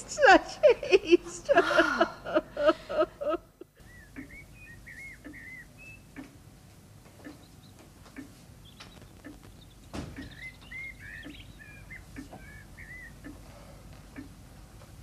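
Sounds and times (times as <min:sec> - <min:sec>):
woman sobbing: 0:00.0 - 0:03.8
songbird chirping: 0:03.7 - 0:06.6, 0:07.2 - 0:13.6
clock ticking faintly: 0:04.1 - 0:06.4, 0:07.2 - 0:15.0.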